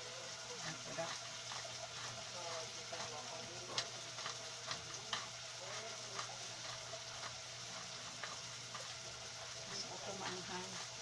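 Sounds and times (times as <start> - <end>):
food sizzling in a pot: 0.0 - 11.0.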